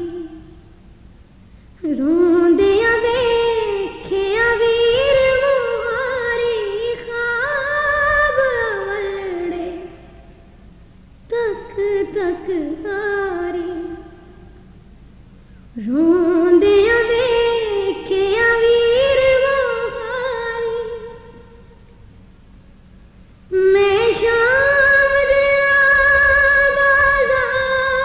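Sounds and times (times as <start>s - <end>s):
woman singing a mournful lament: 0.0s - 0.7s, 1.8s - 10.2s, 11.3s - 14.6s, 15.8s - 21.7s, 23.5s - 28.0s.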